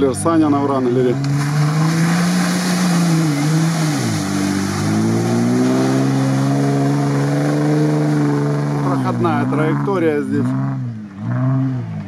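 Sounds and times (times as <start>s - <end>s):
engine revving under load: 1.0s - 12.0s
tyres throwing mud: 1.2s - 8.9s.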